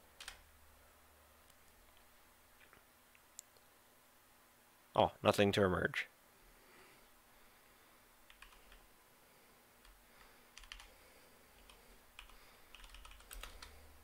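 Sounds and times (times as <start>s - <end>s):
faint typing on computer keyboard: 0.0s - 0.5s, 8.2s - 8.9s, 9.8s - 14.0s.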